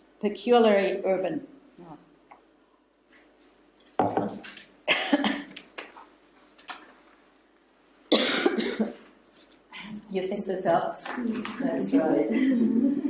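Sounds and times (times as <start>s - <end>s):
woman coughing: 4.9s - 5.5s, 8.1s - 9.0s.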